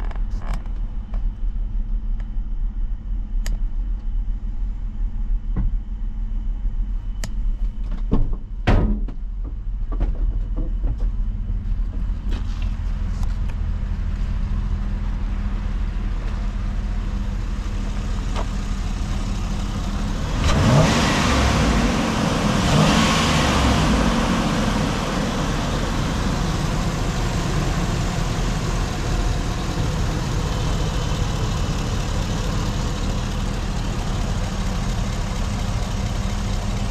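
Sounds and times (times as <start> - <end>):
truck engine idling: 11.2 - 36.9.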